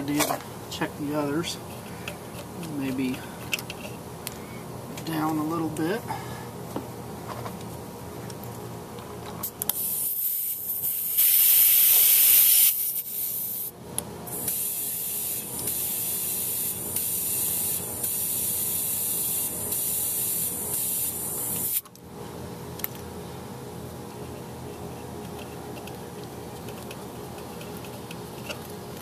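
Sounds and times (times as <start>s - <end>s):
compressed air hissing into tire: 9.7s - 13.7s, 14.3s - 21.8s.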